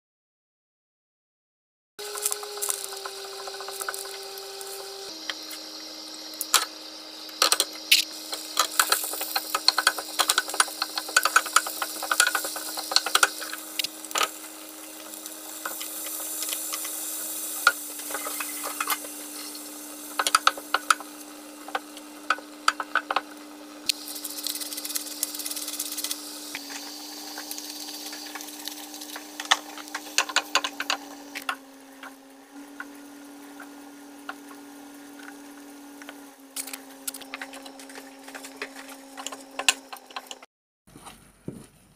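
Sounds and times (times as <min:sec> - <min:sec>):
prawns sizzling in hot oil: 0:02.0 - 0:31.5
spatula scraping a pan: 0:17.6 - 0:21.0.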